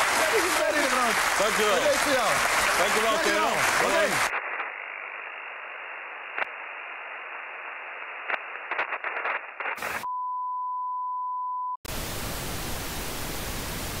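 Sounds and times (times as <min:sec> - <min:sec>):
tape hiss: 0:00.0 - 0:10.1, 0:11.9 - 0:14.0
tv static hiss: 0:00.0 - 0:10.1, 0:11.9 - 0:14.0
clicks and crackles: 0:04.3 - 0:04.9, 0:08.0 - 0:10.0.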